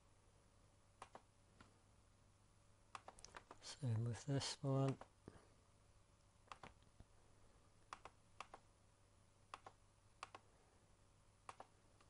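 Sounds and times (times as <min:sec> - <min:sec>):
faint background hum: 0:00.0 - 0:12.0
computer mouse clicks: 0:01.0 - 0:01.3, 0:02.9 - 0:03.6, 0:06.4 - 0:06.9, 0:07.8 - 0:08.7, 0:09.5 - 0:10.5, 0:11.4 - 0:12.0.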